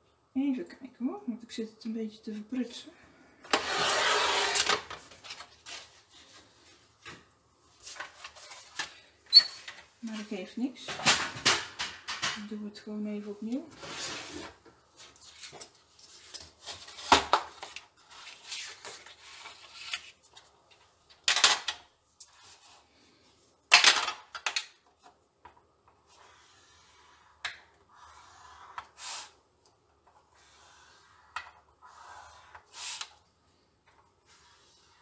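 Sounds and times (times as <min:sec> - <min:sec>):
loud scrapes: 0:03.5 - 0:04.8.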